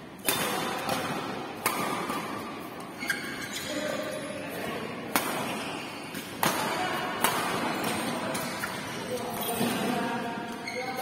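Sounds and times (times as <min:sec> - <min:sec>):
badminton racket hitting shuttlecock: 0:00.2 - 0:03.4, 0:05.1 - 0:08.9.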